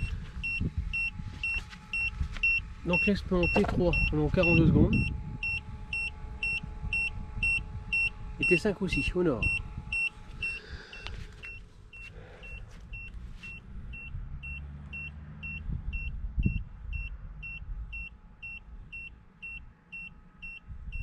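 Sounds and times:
actuator motor humming: 0.0 - 16.6
short high buzzer beeps: 0.0 - 21.0.

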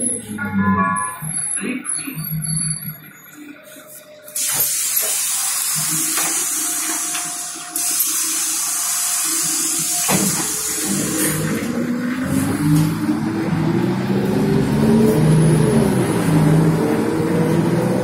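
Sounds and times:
compressed air hiss: 4.4 - 11.5
bus diesel engine rumbling: 7.3 - 18.0.

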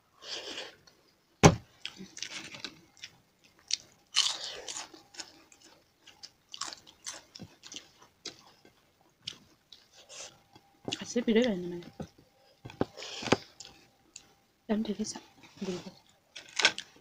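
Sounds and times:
chewing: 1.8 - 11.6, 12.4 - 14.4.

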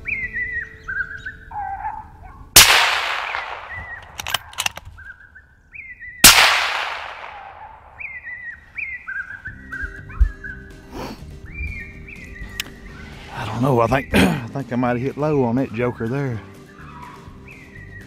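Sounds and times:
suppressed rifle shots: 2.6 - 5.0, 6.2 - 8.2.

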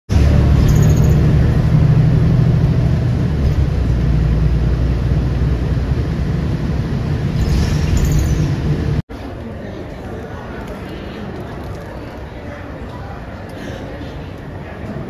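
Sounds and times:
low engine rumble: 0.1 - 12.1.

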